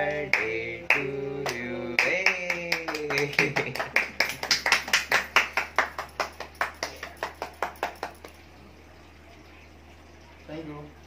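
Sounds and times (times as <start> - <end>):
hands clapping quickly: 0.3 - 8.4.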